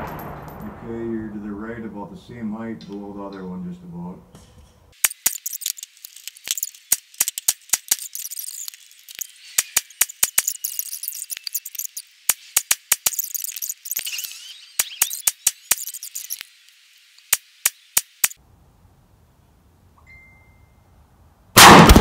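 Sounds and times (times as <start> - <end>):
rifle fire: 0.0 - 1.2, 21.6 - 22.0.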